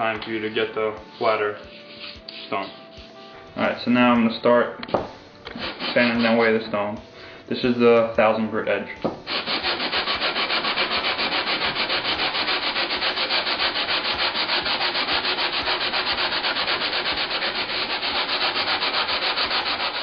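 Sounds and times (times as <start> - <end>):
stone rasping on sandpaper: 1.2 - 3.2, 5.5 - 6.5, 9.3 - 20.0.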